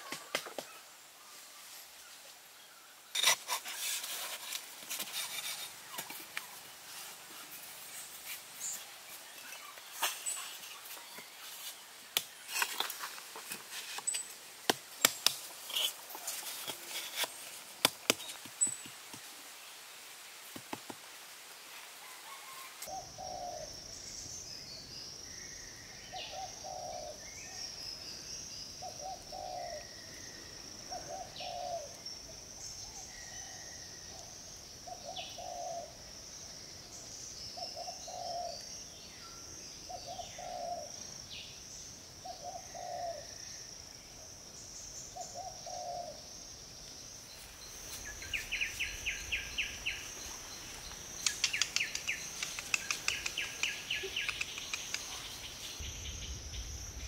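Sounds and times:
pulsing insect trill: 0:47.2 - 0:57.0
sharp clicks: 0:51.2 - 0:55.2.

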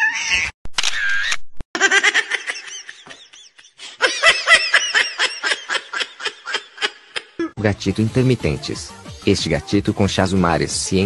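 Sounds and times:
high-pitched laughter: 0:00.1 - 0:07.6.

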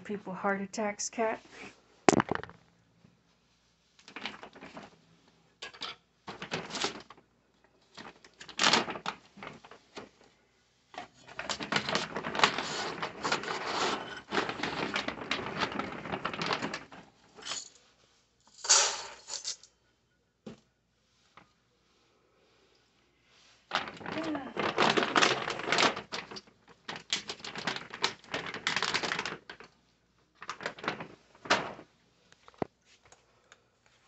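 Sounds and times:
rustling and clicking: 0:03.9 - 0:05.0, 0:05.7 - 0:10.3, 0:10.9 - 0:17.9, 0:23.7 - 0:33.2.

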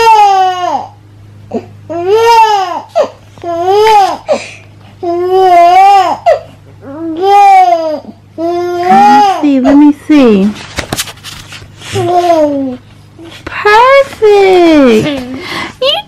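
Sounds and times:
baby crying: 0:00.0 - 0:01.0, 0:01.9 - 0:09.9.

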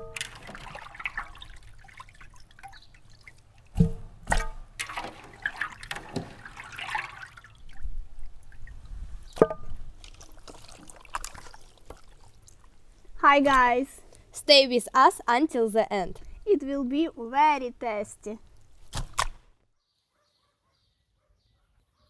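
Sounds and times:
water dripping and trickling: 0:00.0 - 0:14.2, 0:18.4 - 0:18.8.

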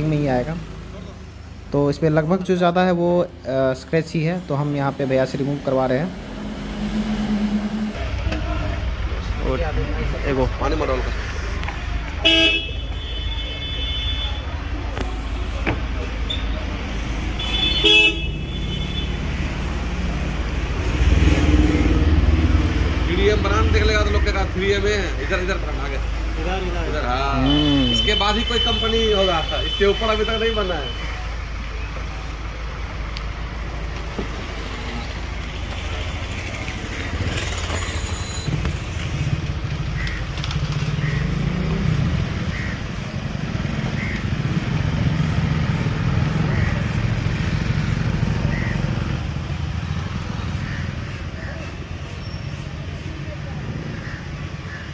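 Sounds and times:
road traffic rumble: 0:00.0 - 0:54.9
vehicle engine rumble: 0:00.0 - 0:54.9
vehicle engine running: 0:05.0 - 0:12.2.

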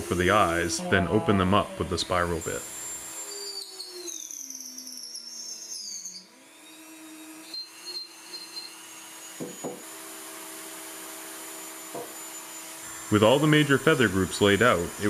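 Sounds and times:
rotary tool whining cutting wood: 0:00.0 - 0:15.0.

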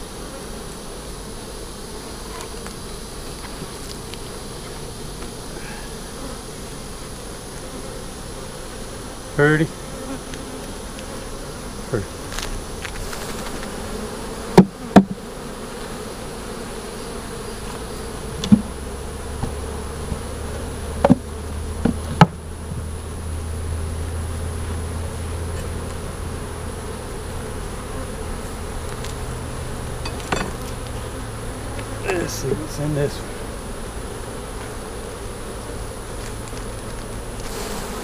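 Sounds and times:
honeybees buzzing: 0:00.0 - 0:38.0.

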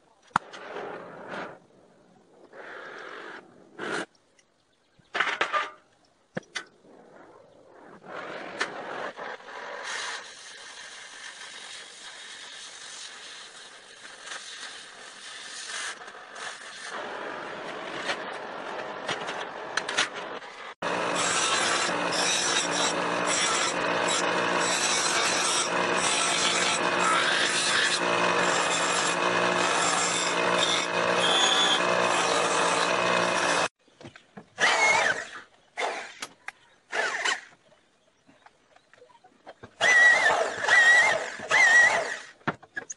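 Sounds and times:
bench grinder grinding steel: 0:20.8 - 0:33.7.

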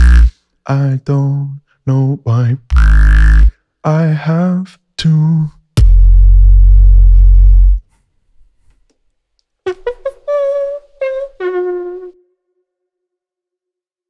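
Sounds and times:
beatboxing mouth sounds: 0:00.0 - 0:00.4, 0:02.6 - 0:03.6, 0:05.1 - 0:07.9.

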